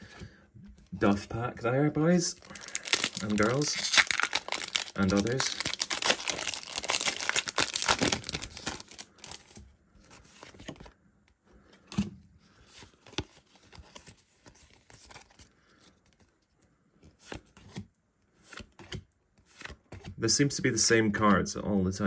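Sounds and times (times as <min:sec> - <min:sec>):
cards rustling: 0:02.0 - 0:11.0, 0:12.6 - 0:20.2
foil wrapper tearing and crinkling: 0:02.4 - 0:09.5.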